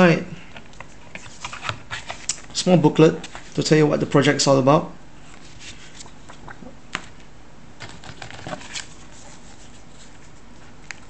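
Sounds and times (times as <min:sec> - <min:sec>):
paper and cardboard rustling: 0:00.8 - 0:02.4, 0:07.8 - 0:10.7.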